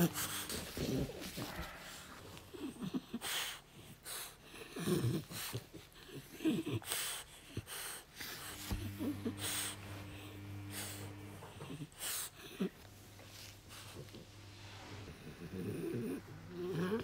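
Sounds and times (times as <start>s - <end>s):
dog breathing noisily: 0.0s - 8.6s
low steady hum: 8.3s - 17.0s.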